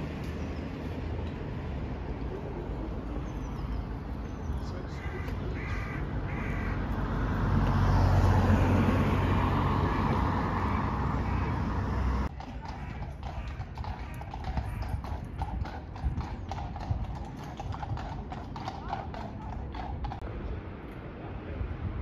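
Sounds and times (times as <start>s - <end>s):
street traffic: 0.0s - 22.0s
horse hooves clip-clopping on pavement: 10.0s - 20.3s.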